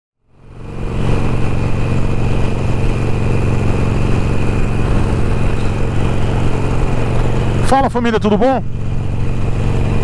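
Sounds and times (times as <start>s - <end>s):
wind and road noise: 0.2s - 10.0s
motorcycle engine cruising: 0.3s - 10.0s.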